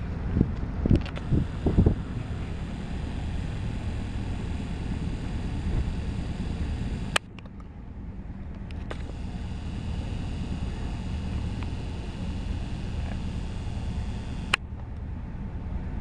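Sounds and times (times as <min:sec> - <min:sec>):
wind hiss on microphone: 0:01.1 - 0:07.2
sharp click: 0:08.7 - 0:14.6.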